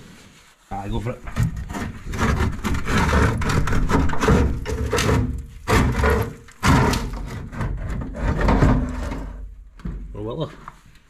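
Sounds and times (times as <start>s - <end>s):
metal scraping and knocking: 1.2s - 10.1s.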